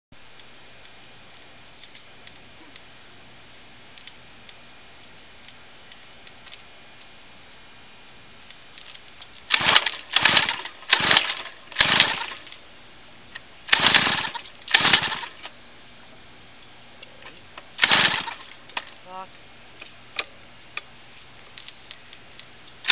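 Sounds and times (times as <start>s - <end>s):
recoil pull-starter whirring rasp: 9.5s - 12.6s, 13.7s - 15.5s, 17.8s - 18.9s.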